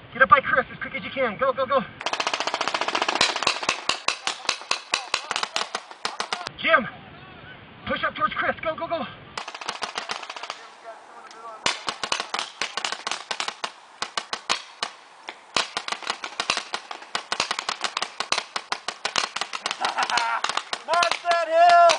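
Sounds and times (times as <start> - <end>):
rapid gunshots: 2.0 - 6.5, 9.4 - 11.0, 11.6 - 21.9.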